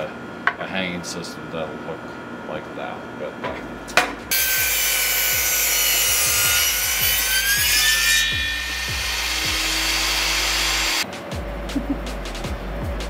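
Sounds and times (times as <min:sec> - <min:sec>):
table saw cutting wood: 0:04.3 - 0:11.0
music with a steady beat: 0:11.0 - 0:13.0.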